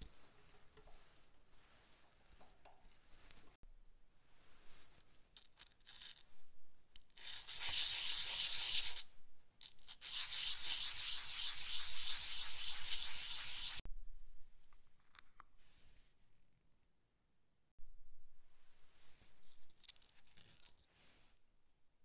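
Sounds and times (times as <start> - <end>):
metal ring sanding on abrasive sheet: 7.2 - 9.0, 9.7 - 13.8.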